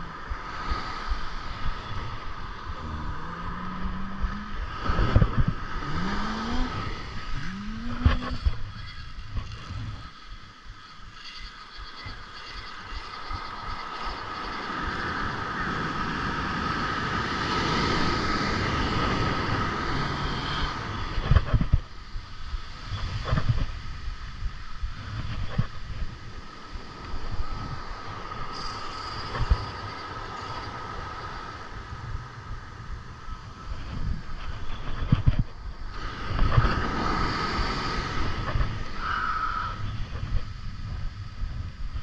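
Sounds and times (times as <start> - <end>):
surf breaking on beach: 0.0 - 41.9
wind on microphone: 0.0 - 42.0
spinning reel cranking: 28.5 - 31.6.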